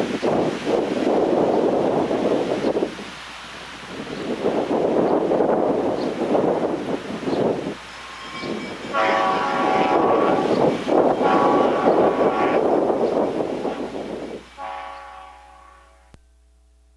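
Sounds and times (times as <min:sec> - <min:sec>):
wind buffeting microphone: 0:00.0 - 0:15.3
train air horn blowing: 0:08.2 - 0:12.9, 0:14.5 - 0:16.2.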